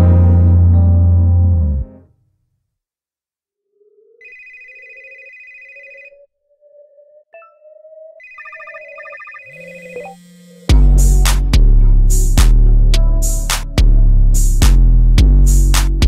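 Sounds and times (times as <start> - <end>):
electronic high beeping tones: 4.2 - 10.7.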